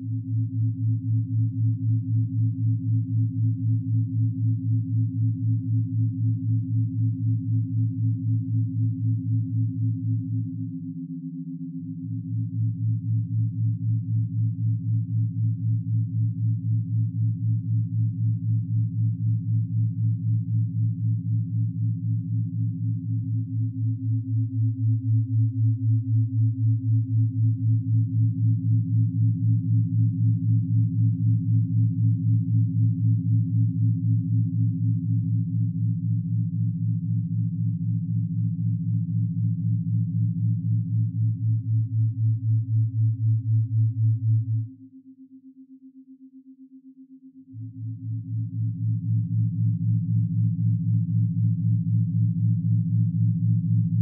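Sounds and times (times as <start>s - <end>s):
pulsing low synthesized tones: 47.5s - 54.0s.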